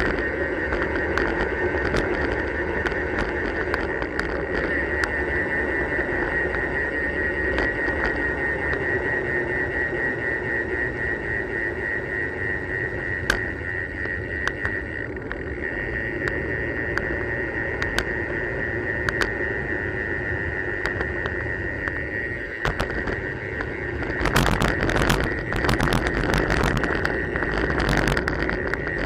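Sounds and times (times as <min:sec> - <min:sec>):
sharp clicks from bumps: 0:00.0 - 0:05.2, 0:13.2 - 0:15.5, 0:19.0 - 0:19.4, 0:22.6 - 0:29.0
tyre and wind noise: 0:00.0 - 0:08.8, 0:20.9 - 0:29.0
freewheel hub ratchet buzz: 0:00.0 - 0:29.0.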